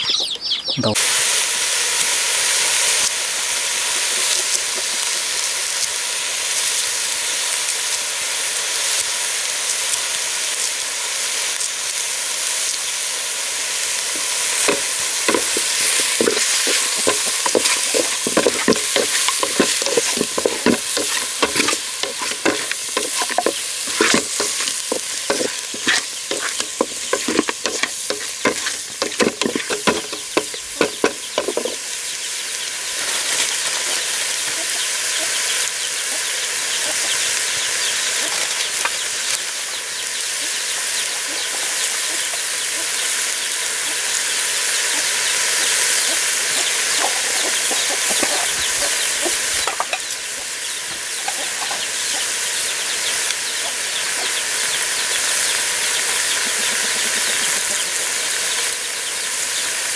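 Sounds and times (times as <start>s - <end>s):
food sizzling in a pan: 0.9s - 59.9s
stirring knocks against pan: 14.6s - 31.8s.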